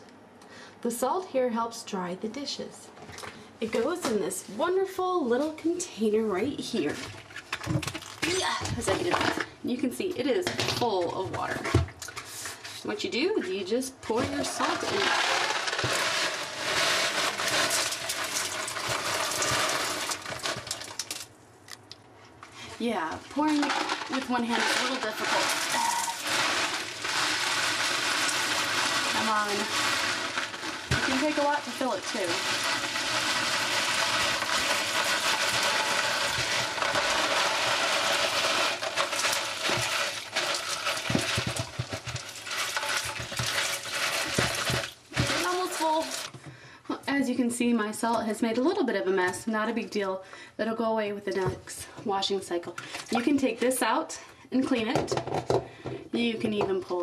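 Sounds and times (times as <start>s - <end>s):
salt grains pouring: 14.6s - 21.2s, 23.4s - 46.3s.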